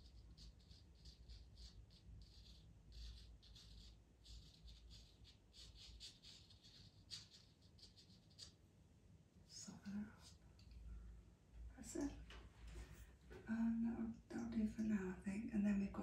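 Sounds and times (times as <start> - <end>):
pastel pencil scratching on paper: 0.0 - 8.6.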